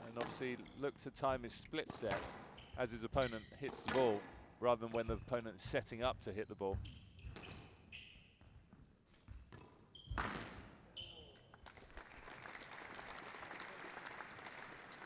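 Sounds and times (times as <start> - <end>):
shoes squeaking on wooden floor: 2.0 - 4.2, 4.9 - 11.4
crowd applauding: 11.6 - 15.0.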